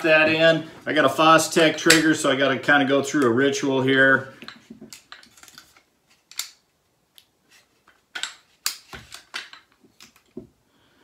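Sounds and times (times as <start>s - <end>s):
rifle parts clicking and clacking: 4.4s - 10.4s.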